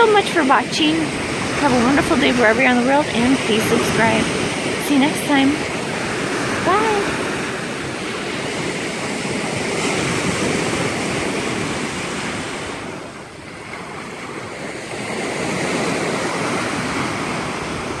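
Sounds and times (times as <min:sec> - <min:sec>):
waves breaking on shore: 0:00.0 - 0:18.0.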